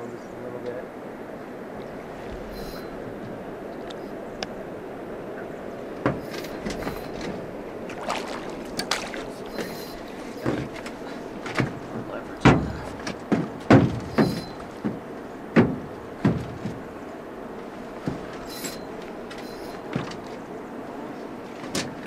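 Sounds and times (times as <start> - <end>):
river water washing: 1.0 - 21.5
knocks and thumps on a boat: 5.3 - 22.0.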